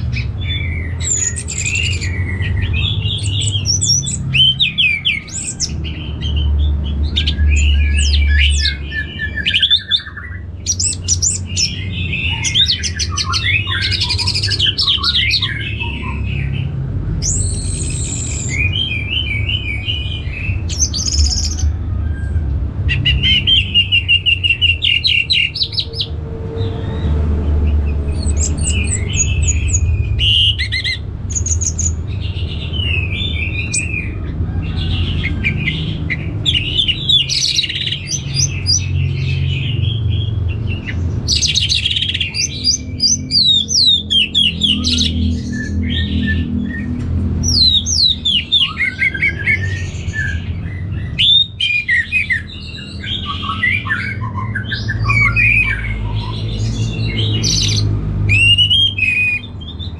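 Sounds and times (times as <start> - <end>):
steady low rumble: 10.6 - 48.7.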